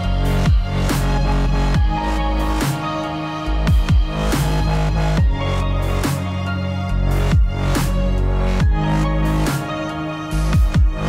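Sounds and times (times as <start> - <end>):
electronic dance music: 0.0 - 11.0
heavy kick drums: 7.3 - 7.7, 10.6 - 11.0.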